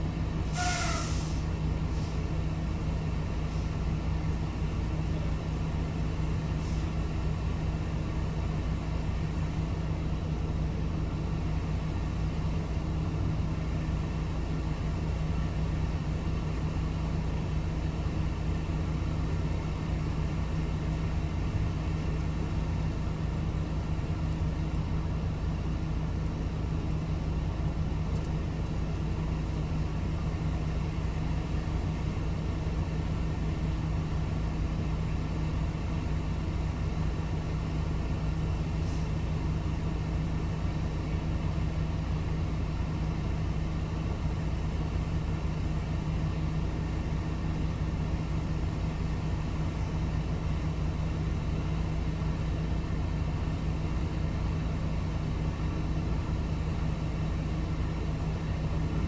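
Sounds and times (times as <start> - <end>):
vehicle engine idling hum: 0.0 - 59.0.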